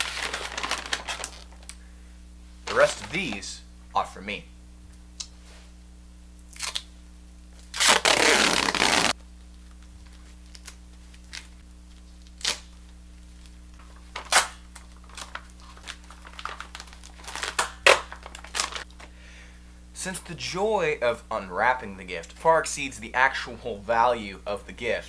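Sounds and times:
duct tape ripping: 0.0 - 1.8, 6.5 - 6.9, 7.6 - 9.2, 10.0 - 13.5, 14.1 - 18.9
tape crinkling: 0.0 - 1.8, 2.6 - 3.5, 7.5 - 19.1.

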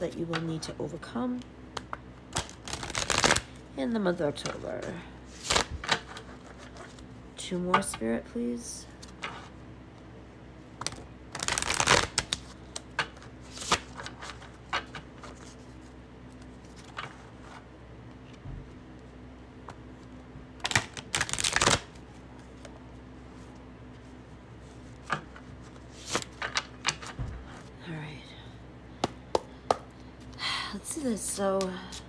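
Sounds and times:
cards being shuffled: 1.8 - 3.5, 4.4 - 7.1, 10.8 - 18.4, 19.6 - 22.8, 23.4 - 27.7.

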